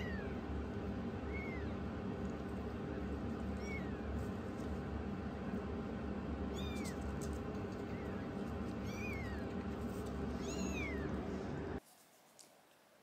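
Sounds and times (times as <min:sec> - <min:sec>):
steady low hum: 0:00.0 - 0:11.8
kitten mewing: 0:01.2 - 0:01.8, 0:06.5 - 0:07.1, 0:10.4 - 0:11.3.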